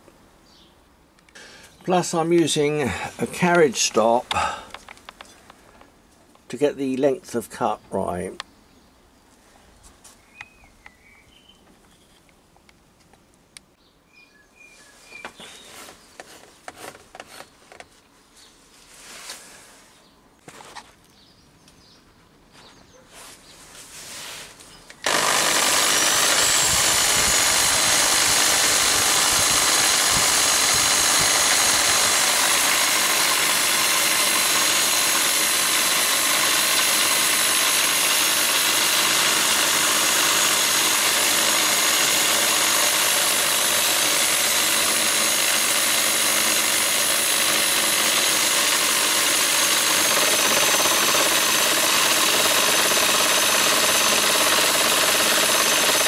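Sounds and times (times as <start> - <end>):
electric drill motor whine: 25.0 - 56.0
machine noise: 25.0 - 56.0.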